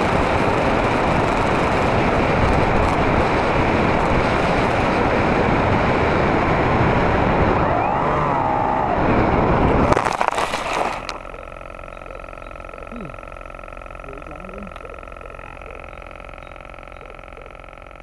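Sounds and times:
loud wind rush: 0.0s - 10.0s
wavering whistle-like tone: 7.6s - 9.0s.

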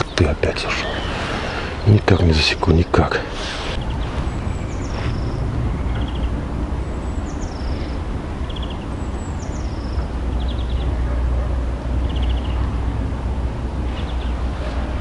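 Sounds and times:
songbird singing: 0.0s - 15.0s
steady low rumble: 0.3s - 15.0s.

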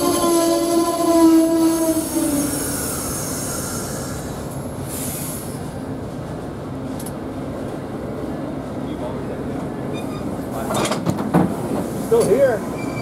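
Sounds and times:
train wheels rumbling: 0.0s - 13.0s
air hissing: 1.6s - 5.8s
multi-tone squeal: 12.7s - 13.0s.

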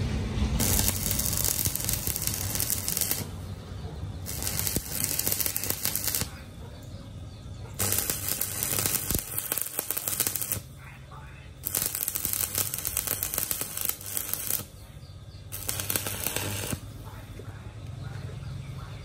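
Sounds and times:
welding arc crackling on steel: 0.0s - 6.5s, 7.7s - 10.8s, 11.6s - 14.8s, 15.5s - 17.2s.

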